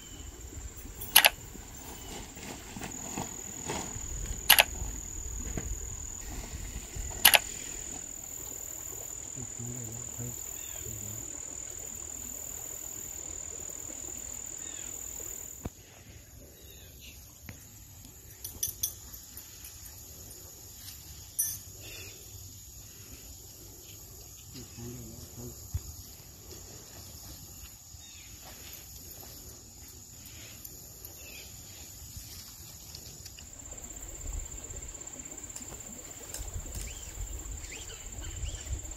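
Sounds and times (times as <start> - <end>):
insects trilling: 0.0 - 15.7, 18.2 - 38.9
sharp clicks: 1.1 - 1.4, 4.4 - 4.8, 7.2 - 7.5.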